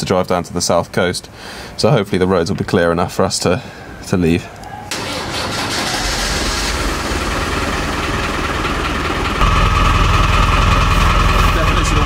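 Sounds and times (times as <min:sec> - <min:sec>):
car engine idling: 0:05.0 - 0:12.0.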